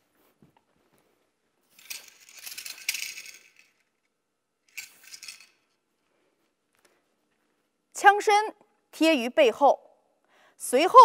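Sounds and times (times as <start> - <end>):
spear swishing and rattling: 1.6 - 3.8.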